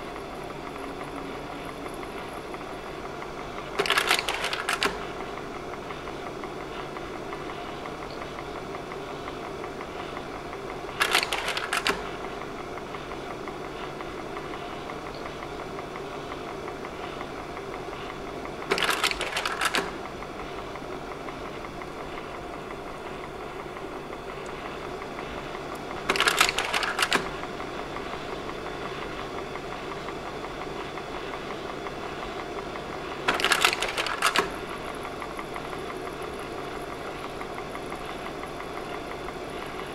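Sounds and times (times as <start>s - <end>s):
projector fan and motor hum: 0.0s - 39.9s
slide-change mechanism clacking: 25.7s - 27.4s, 33.3s - 34.6s.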